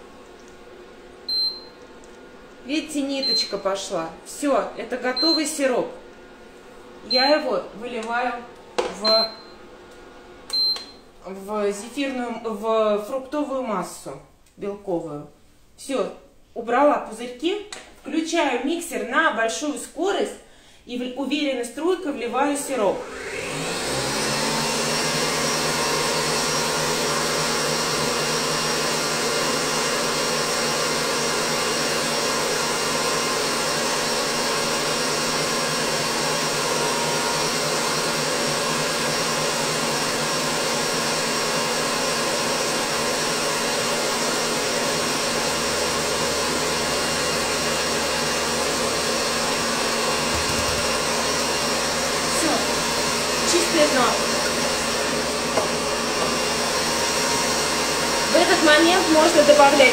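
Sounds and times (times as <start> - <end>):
electric stand mixer whining: 22.8 - 59.9.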